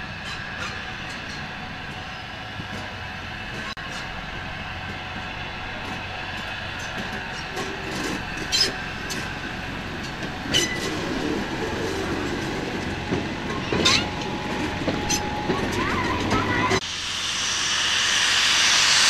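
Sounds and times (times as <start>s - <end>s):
railcar engine running: 0.0s - 19.0s
wheels clacking over rail joints: 0.1s - 16.8s.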